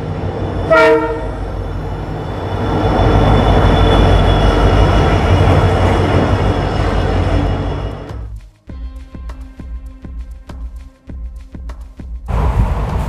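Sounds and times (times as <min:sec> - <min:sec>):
train coaches rumbling: 0:00.0 - 0:08.3, 0:12.3 - 0:13.0
wheels squealing: 0:01.4 - 0:08.1.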